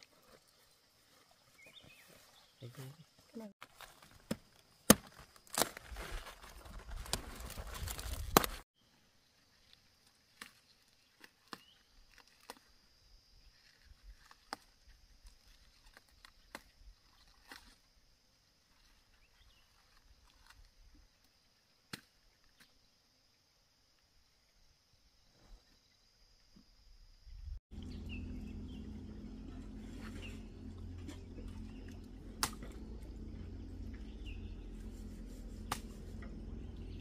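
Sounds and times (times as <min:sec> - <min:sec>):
cabbage leaves rustling and crackling: 0:04.9 - 0:08.6.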